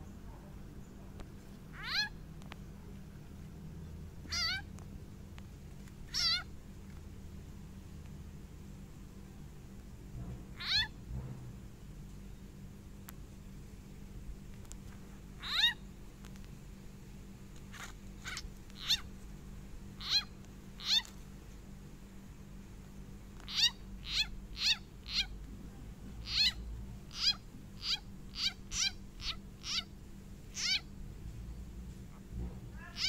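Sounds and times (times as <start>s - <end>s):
frog squealing in distress: 1.7s - 2.2s, 4.3s - 4.7s, 6.1s - 6.5s, 10.6s - 10.9s, 15.4s - 15.8s, 17.8s - 19.1s, 20.0s - 21.1s, 23.5s - 25.4s, 26.2s - 29.9s, 30.5s - 30.9s, 32.8s - 33.0s.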